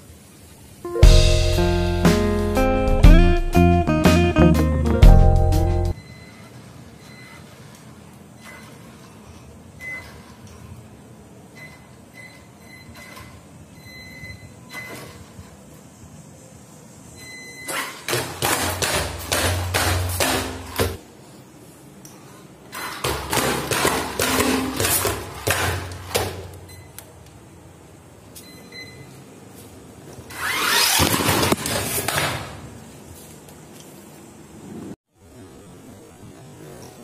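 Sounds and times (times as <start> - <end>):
toy truck thudding down stairs: 22.8 - 26.4, 30.3 - 32.6.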